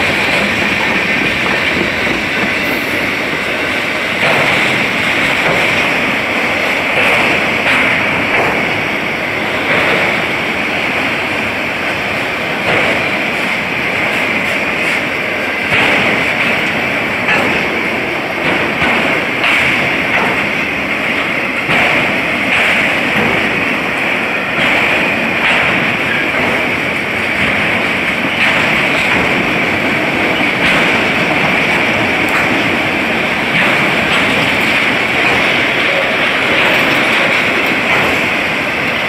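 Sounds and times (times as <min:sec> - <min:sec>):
train wheels rushing on rail: 0:00.0 - 0:39.0
wheel clacks: 0:09.5 - 0:39.0.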